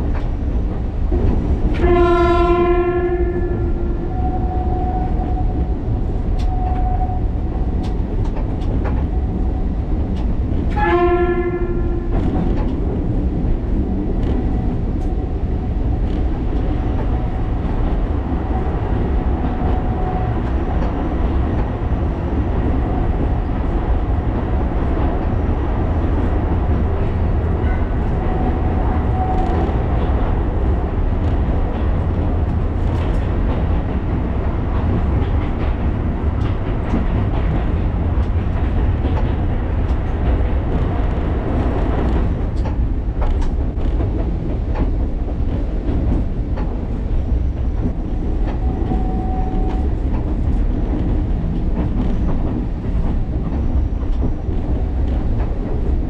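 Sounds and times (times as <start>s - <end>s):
train rumbling: 0.0s - 56.0s
train horn blasts: 1.8s - 5.2s, 10.7s - 12.1s, 48.6s - 49.8s.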